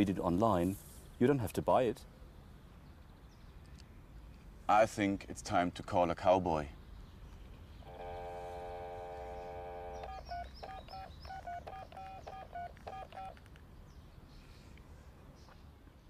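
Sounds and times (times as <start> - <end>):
telephone dial tone: 7.9 - 13.4
touch-tone key beeps: 10.0 - 13.4.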